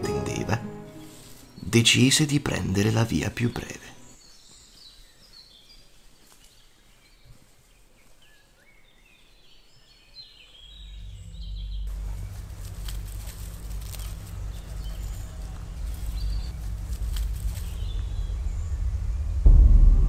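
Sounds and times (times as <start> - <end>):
birdsong chirping: 0.0 - 19.4
dry leaves rustling: 1.0 - 2.3, 4.2 - 10.1, 10.8 - 19.2
low steady rumble: 10.8 - 20.0.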